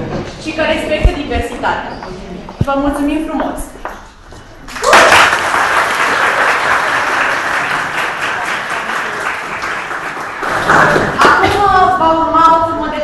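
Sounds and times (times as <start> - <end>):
audience applauding: 4.7 - 11.5.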